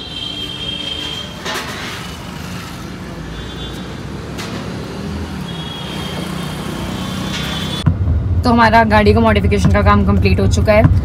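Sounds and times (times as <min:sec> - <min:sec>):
rumble of passing traffic: 0:00.0 - 0:11.0.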